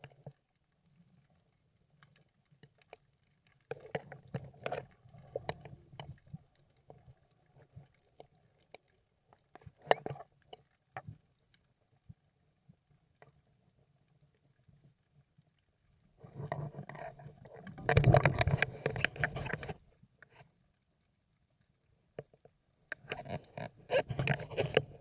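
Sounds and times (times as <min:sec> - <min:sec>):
underwater clicks and crackles: 0:00.0 - 0:25.0
rough underwater noise: 0:02.2 - 0:08.6, 0:16.1 - 0:20.4, 0:22.9 - 0:25.0.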